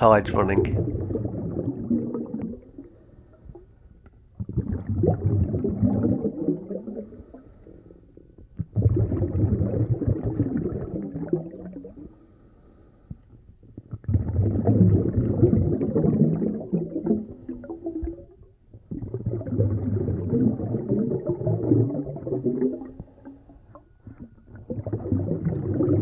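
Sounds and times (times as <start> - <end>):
regulator bubbles gurgling underwater: 0.0 - 12.2, 13.6 - 26.0.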